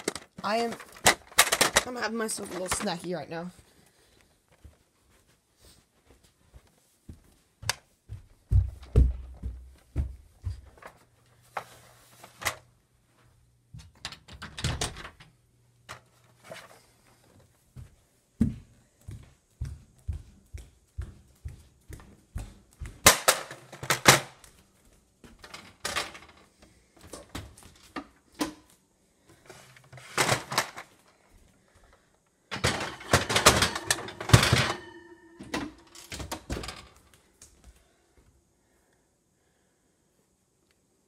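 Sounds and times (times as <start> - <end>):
objects clattering when handled: 0.0 - 3.3, 32.5 - 37.0.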